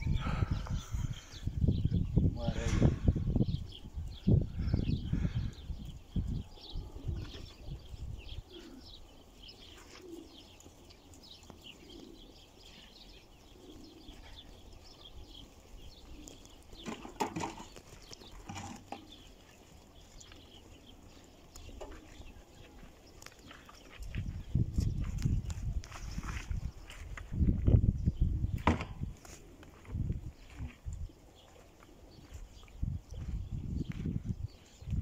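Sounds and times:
soft low cooing: 8.5 - 9.0.

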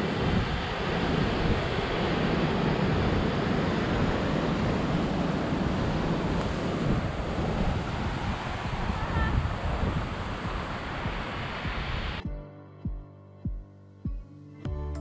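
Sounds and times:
wind rumbling on microphone: 0.0 - 12.3.

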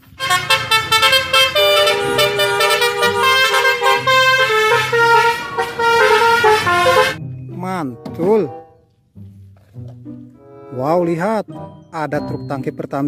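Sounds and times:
musical bus horn playing a tune: 0.0 - 7.2.

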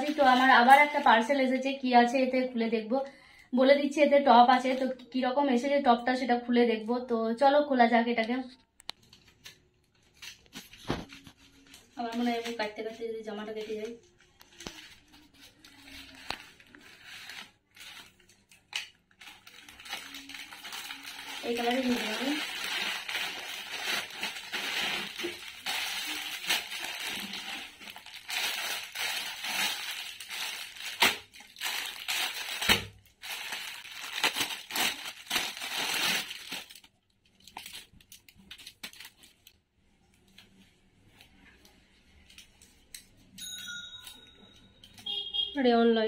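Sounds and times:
plastic packaging crinkling: 0.0 - 1.5, 8.8 - 39.6.

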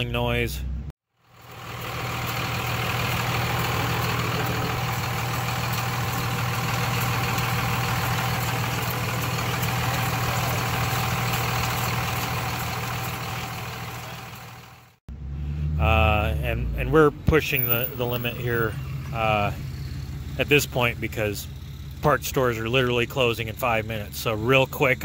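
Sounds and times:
truck engine idling: 0.2 - 25.0.

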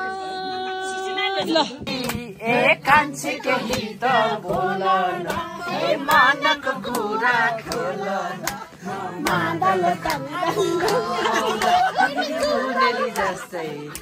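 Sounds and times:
voices singing together: 0.0 - 14.0
hand claps: 1.9 - 2.3, 3.6 - 14.0.

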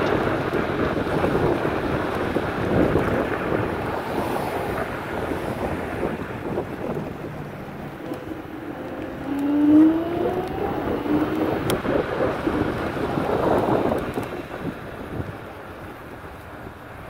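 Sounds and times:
wind rushing over microphone: 0.0 - 17.0
mechanical hum rising in pitch: 7.0 - 12.4.

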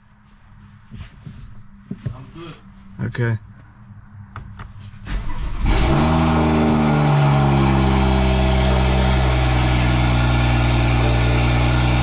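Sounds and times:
car engine starting and idling: 4.4 - 12.0.

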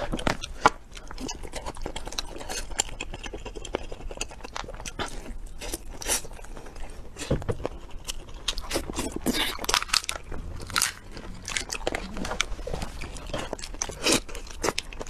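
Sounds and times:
person chewing: 0.0 - 15.0.

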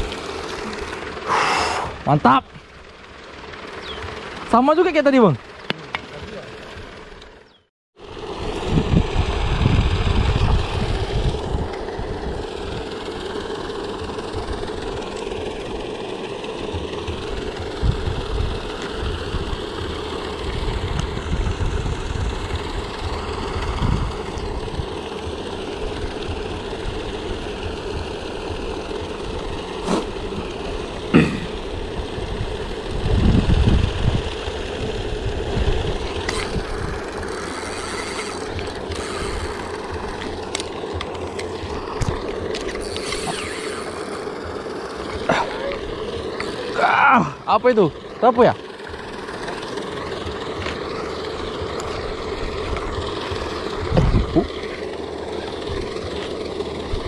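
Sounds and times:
motor hum: 0.0 - 57.0
low rumble: 51.2 - 57.0.

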